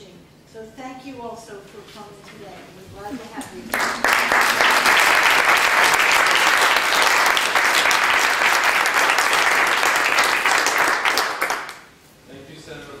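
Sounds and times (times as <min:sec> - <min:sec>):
crowd applause: 0:03.4 - 0:11.9.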